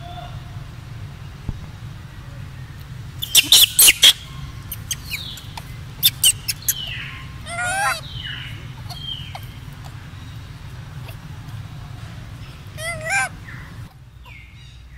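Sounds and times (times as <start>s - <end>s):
monkey squeaking and chirping: 3.2s - 10.4s, 12.4s - 14.5s.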